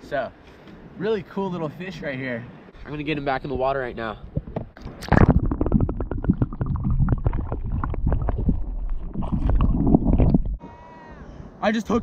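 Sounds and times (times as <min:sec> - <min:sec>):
water sloshing and bubbling: 0:02.7 - 0:10.6.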